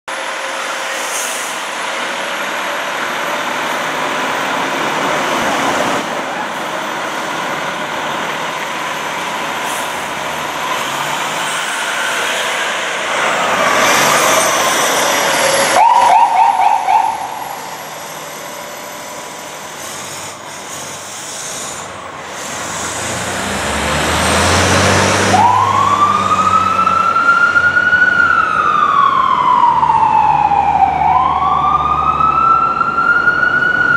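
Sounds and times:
fire engine engine running: 0:00.1 - 0:33.9
traffic noise: 0:00.1 - 0:33.9
electronic wail siren: 0:13.5 - 0:17.8, 0:25.3 - 0:33.9
fast warbling siren burst: 0:13.5 - 0:17.8, 0:25.3 - 0:33.9.

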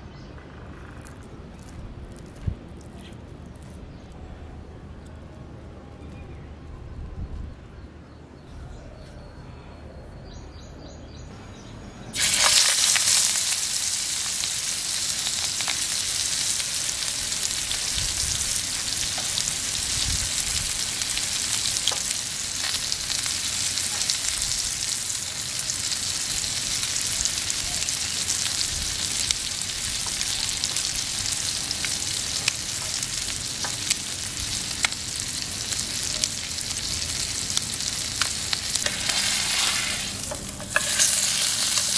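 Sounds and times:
oil popping and crackling: 0:00.8 - 0:03.8, 0:12.2 - 0:41.9
fish sizzling in a frying pan: 0:12.2 - 0:41.9.

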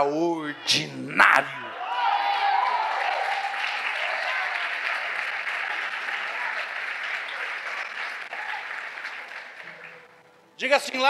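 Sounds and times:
congregation applauding: 0:01.8 - 0:10.3.

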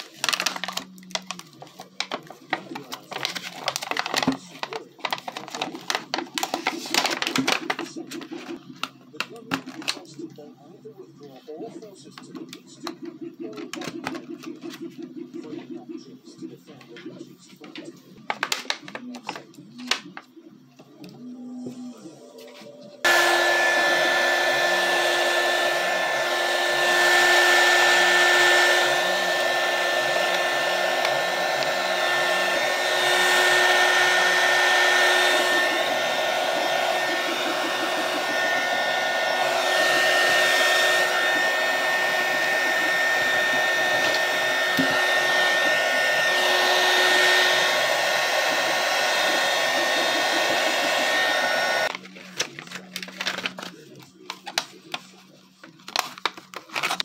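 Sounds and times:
hot-air blower whining: 0:21.4 - 0:53.6.

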